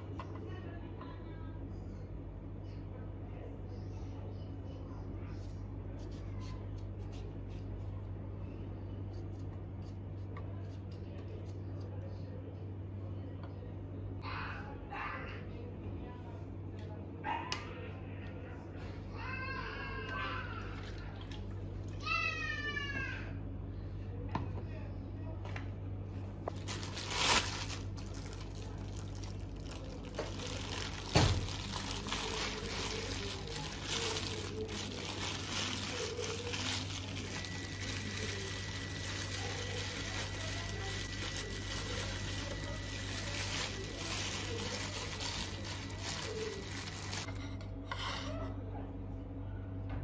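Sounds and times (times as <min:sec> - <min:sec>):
plastic bag crinkling: 0:26.4 - 0:47.4.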